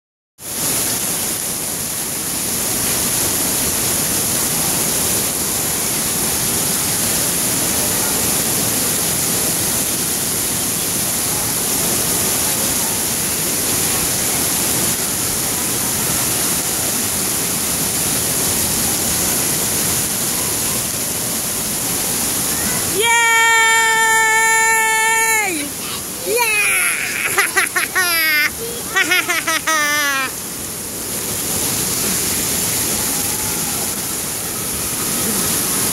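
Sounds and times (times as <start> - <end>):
water rushing down a slide: 0.4 - 35.9.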